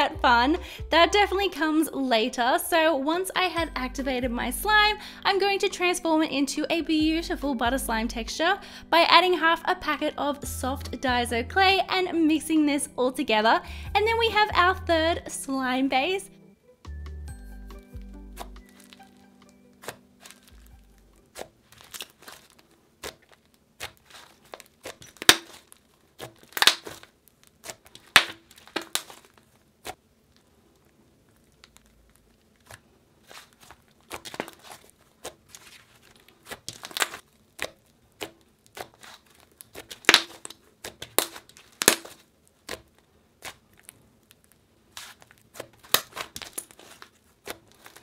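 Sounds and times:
slime being kneaded: 0:17.7 - 0:48.0.

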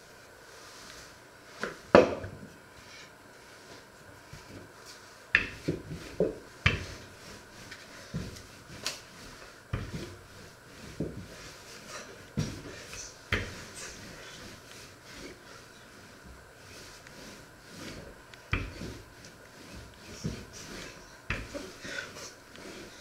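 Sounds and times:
rolling pin knocking on worktop: 0:05.4 - 0:07.0, 0:09.7 - 0:10.2, 0:18.5 - 0:19.0, 0:21.3 - 0:21.6.

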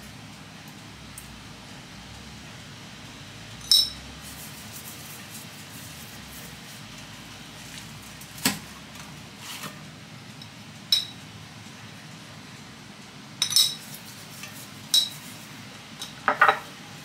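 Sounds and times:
metal spoon clinking steel bowl: 0:03.6 - 0:04.0, 0:10.9 - 0:11.2, 0:13.4 - 0:13.9, 0:14.9 - 0:15.2.

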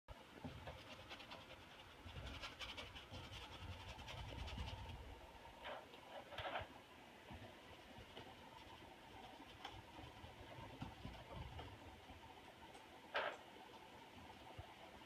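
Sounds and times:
paint strokes on canvas: 0:00.5 - 0:05.2, 0:07.3 - 0:12.6.

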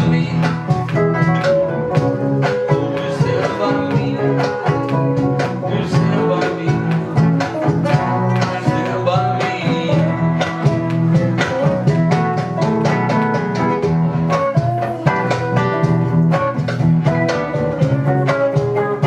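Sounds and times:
man singing: 0:00.0 - 0:11.2
bass line: 0:00.0 - 0:19.0
guitars strummed and picked: 0:00.0 - 0:19.0.

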